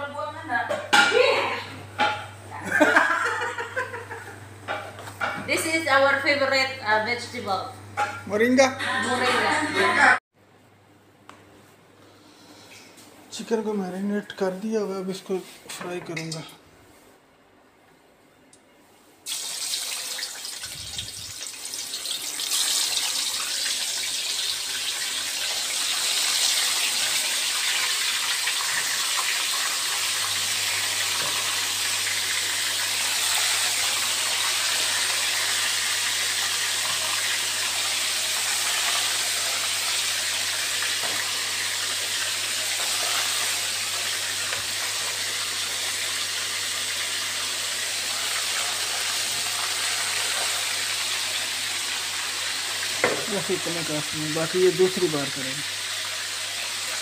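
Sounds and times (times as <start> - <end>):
chicken deep-frying in hot oil: 19.2 - 57.0.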